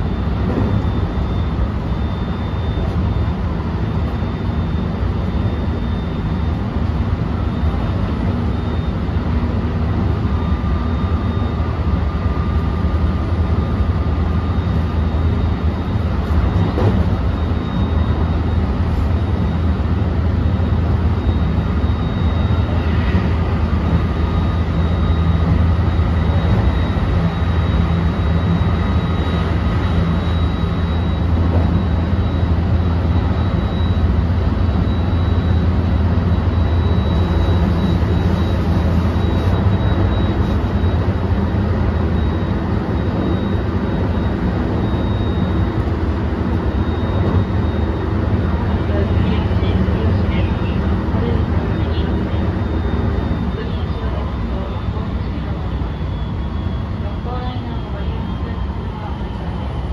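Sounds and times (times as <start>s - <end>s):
train wheels rumbling on rails: 16.0s - 17.3s.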